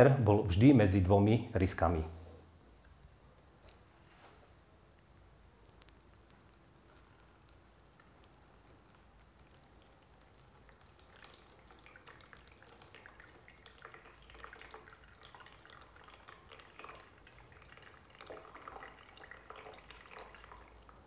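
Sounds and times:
water trickling and dripping: 5.6s - 21.0s.

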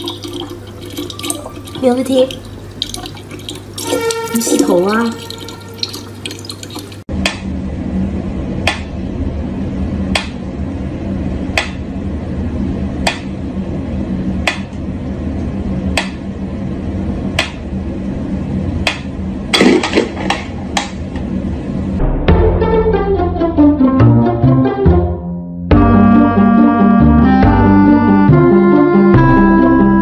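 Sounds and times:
tap water running: 0.0s - 7.1s.

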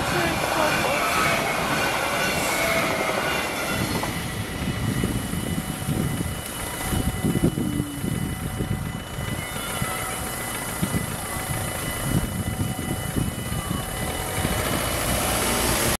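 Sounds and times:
street traffic: 0.0s - 16.0s
wind rumble on microphone: 3.8s - 16.0s
faint steady high tone: 5.4s - 14.4s.

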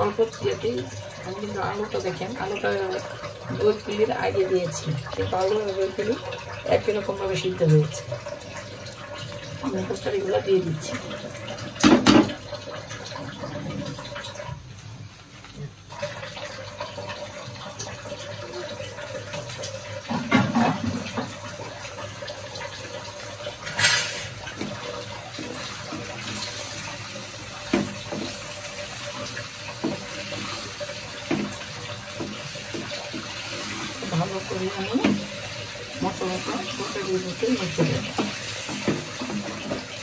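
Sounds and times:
curry sizzling in a pan: 14.0s - 40.0s.

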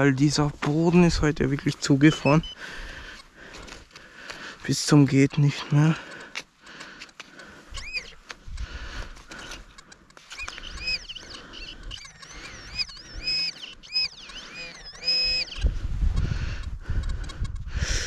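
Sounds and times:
metal detector warbling tone: 2.0s - 2.6s, 7.8s - 8.1s, 10.3s - 15.6s.

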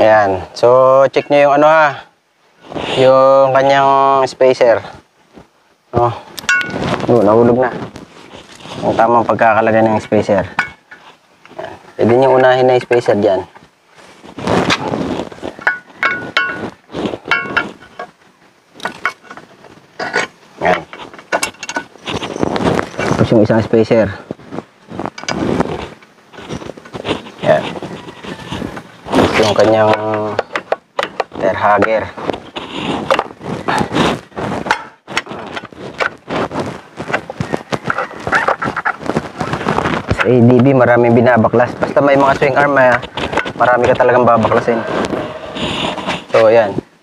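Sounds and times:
metallic clinks and knocks: 6.4s - 7.0s, 15.6s - 18.1s, 18.8s - 23.2s
short scrapes: 44.6s - 46.5s.

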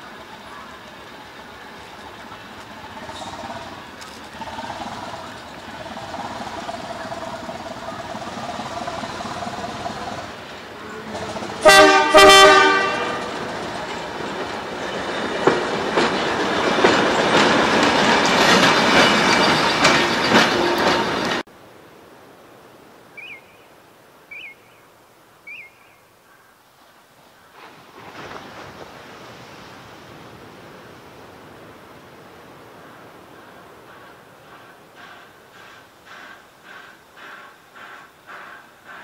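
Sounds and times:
locomotive engine running: 0.0s - 21.4s
wheels clicking over rail joints: 0.0s - 21.5s
locomotive horn blasts: 10.9s - 13.4s.

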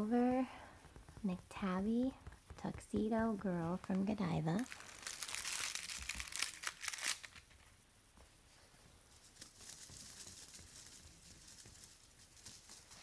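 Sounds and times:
faint rustling and scratching: 0.0s - 13.0s
foil toy crinkling: 3.8s - 7.7s, 9.1s - 13.0s.

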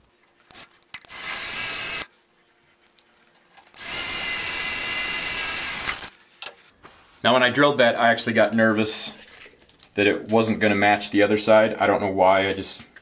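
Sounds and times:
cordless drill drilling into steel: 0.5s - 2.1s, 3.8s - 6.1s.

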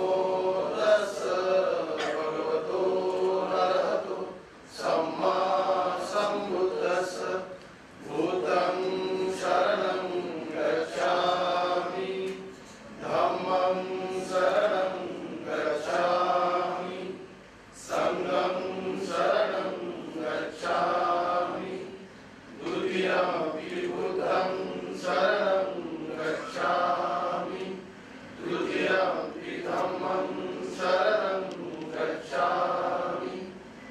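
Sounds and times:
voices chanting in unison: 0.0s - 33.6s.

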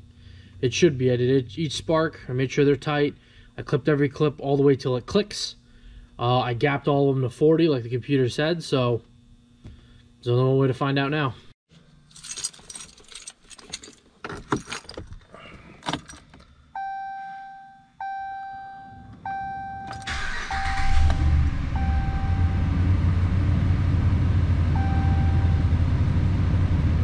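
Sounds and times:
keys jangling: 12.1s - 16.4s
dashboard warning chime: 16.8s - 21.1s, 21.7s - 22.9s, 24.7s - 25.8s
engine cranking and idling: 19.9s - 23.5s.

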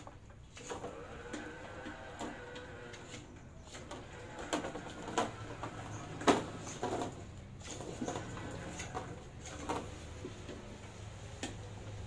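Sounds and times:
electric motors whining: 0.5s - 9.8s.

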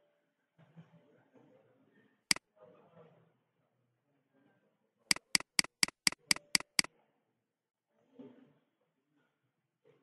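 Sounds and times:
computer mouse clicking: 5.1s - 6.9s.

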